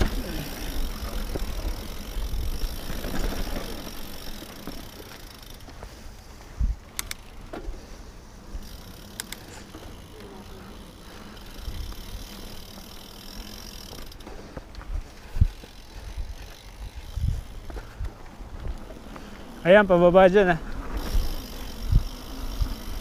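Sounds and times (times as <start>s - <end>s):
bike tyres on rocky dirt: 0.0s - 23.0s
sharp clicks: 6.9s - 7.4s, 9.1s - 9.5s.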